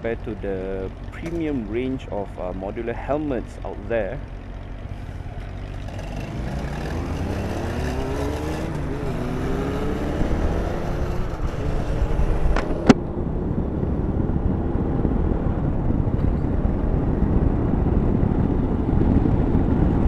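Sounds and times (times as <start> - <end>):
wind rumble: 0.0 - 20.0
motorcycle engine accelerating: 3.9 - 20.0.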